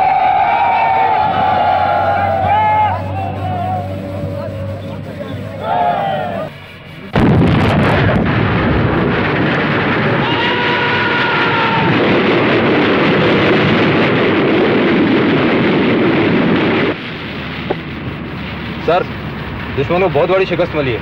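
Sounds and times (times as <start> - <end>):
thin whistling tone: 1.9 - 7.1
artillery and explosions rumbling: 7.1 - 21.0.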